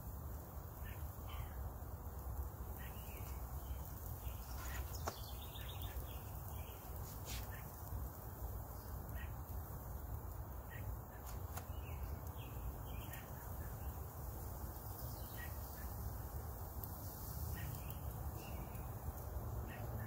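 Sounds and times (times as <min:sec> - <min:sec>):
bird chirps: 0:02.8 - 0:07.7, 0:10.7 - 0:14.0, 0:14.8 - 0:16.0.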